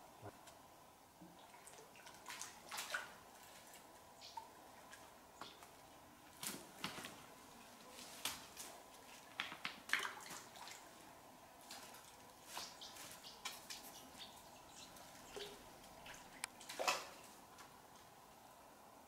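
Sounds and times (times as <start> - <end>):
fish splashing in water: 15.2 - 17.3.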